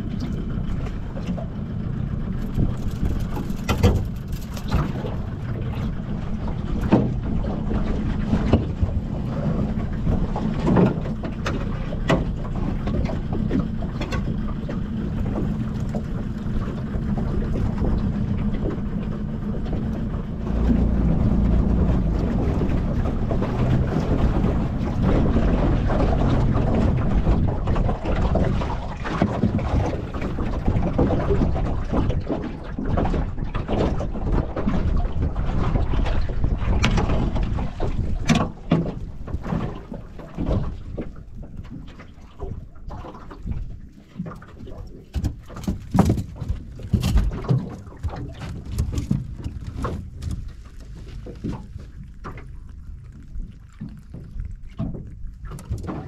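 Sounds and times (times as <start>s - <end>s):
wind rumbling on microphone: 0.0s - 56.0s
crab pot knocking against hull: 45.1s - 50.5s.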